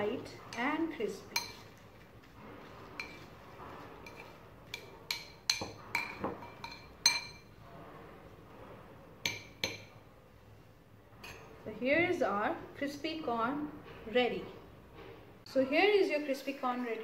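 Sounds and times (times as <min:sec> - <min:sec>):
metal spoon clinking glass bowl: 0:01.3 - 0:01.8, 0:04.0 - 0:07.5.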